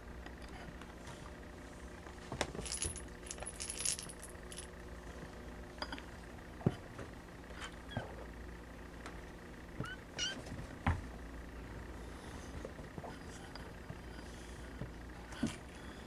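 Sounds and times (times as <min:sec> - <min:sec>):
small metal bell jingling: 0:02.6 - 0:04.7.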